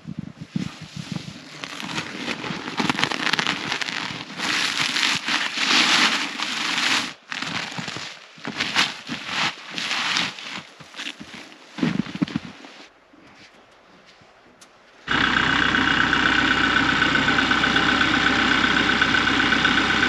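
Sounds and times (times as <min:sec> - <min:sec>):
plastic wrap crinkling: 0:01.3 - 0:12.8.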